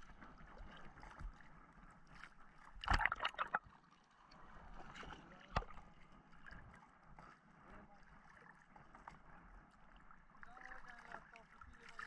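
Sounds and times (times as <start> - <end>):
sea water splashing: 2.6 - 3.9.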